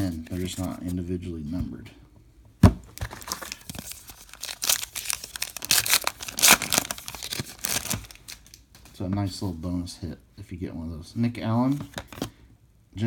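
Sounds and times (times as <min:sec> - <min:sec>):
foil wrapper tearing and crinkling: 0:03.0 - 0:08.6.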